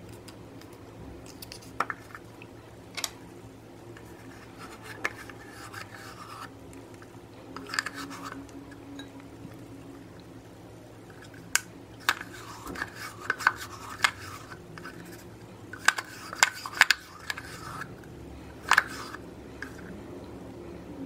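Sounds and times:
spoon scraping cream: 0:04.0 - 0:07.0, 0:07.6 - 0:08.8, 0:12.0 - 0:19.9.

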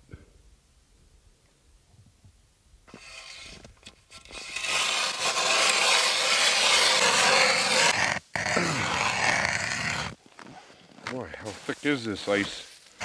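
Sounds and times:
ice auger rasping scrape: 0:02.9 - 0:13.0.

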